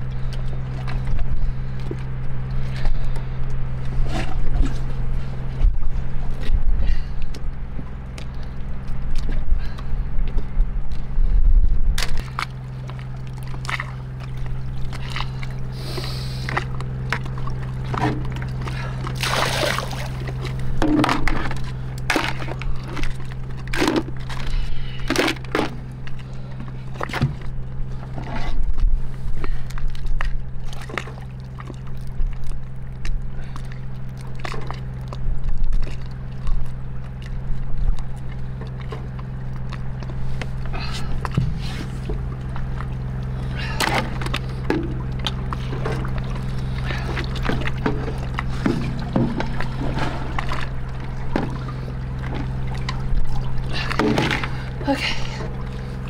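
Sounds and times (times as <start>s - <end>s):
steady low hum: 0.0s - 56.0s
wet splashing: 12.2s - 20.6s.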